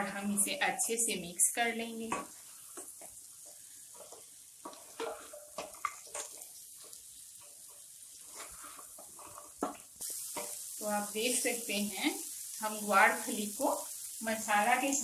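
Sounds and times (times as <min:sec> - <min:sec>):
faint sizzle: 0:00.0 - 0:15.0
wooden spatula scraping pan: 0:02.1 - 0:10.6.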